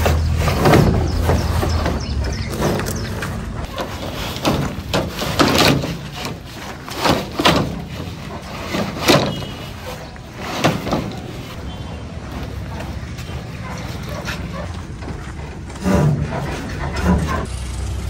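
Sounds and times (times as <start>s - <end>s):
plastic pipes knocking together: 0.0s - 9.8s.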